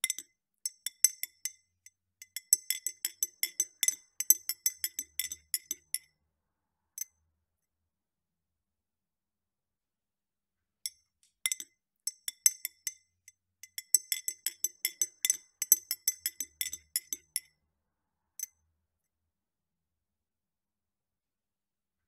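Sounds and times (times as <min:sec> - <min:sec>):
spoon clinking in glass: 0:02.2 - 0:06.1, 0:10.9 - 0:13.0, 0:13.6 - 0:17.5.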